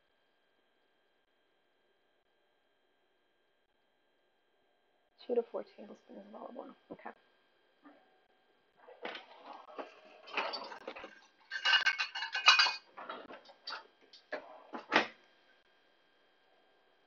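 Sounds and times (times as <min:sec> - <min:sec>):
metal pots and pans clattering: 0:09.0 - 0:15.0.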